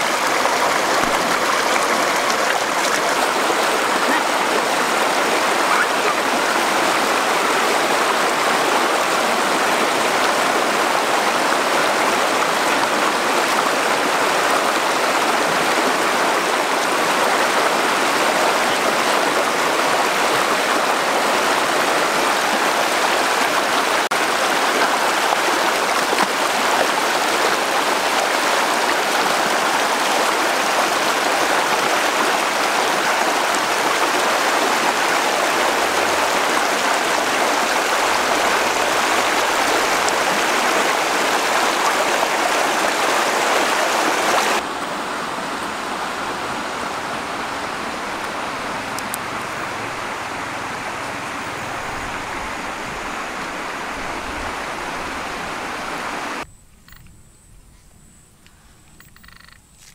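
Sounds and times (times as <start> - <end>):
river water rushing: 0.0 - 56.4.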